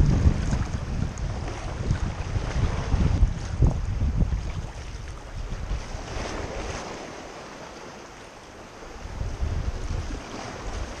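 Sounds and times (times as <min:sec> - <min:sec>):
wind buffeting microphone: 0:00.0 - 0:07.9, 0:08.8 - 0:11.0
water slapping around kayak: 0:00.0 - 0:11.0.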